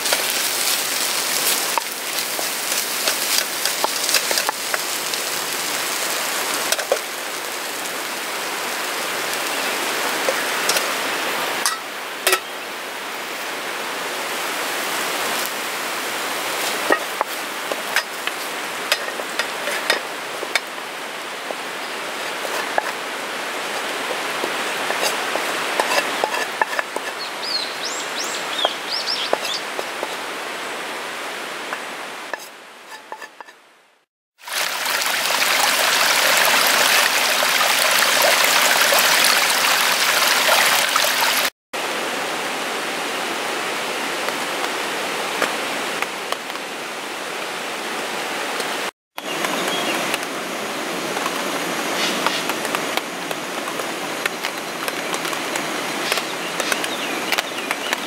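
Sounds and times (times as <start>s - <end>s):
food frying hiss: 0.0s - 12.4s, 34.4s - 41.5s, 51.0s - 58.0s
pan and utensil clicks and scrapes: 1.7s - 4.9s, 16.9s - 20.7s, 22.3s - 23.0s, 24.8s - 27.2s, 32.3s - 33.6s, 56.0s - 57.5s.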